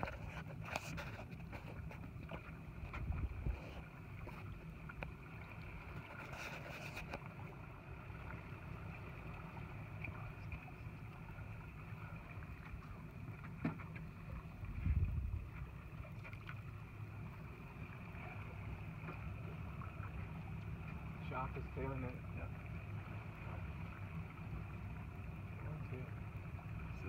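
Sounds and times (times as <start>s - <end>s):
boat engine low rumble: 0.0s - 27.0s.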